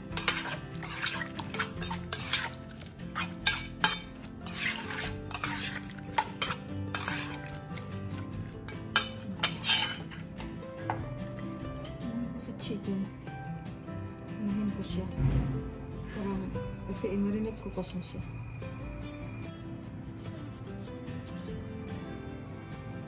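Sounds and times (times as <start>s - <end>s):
metal spoon stirring in bowl: 0.0s - 10.4s
soft background music: 0.0s - 23.0s.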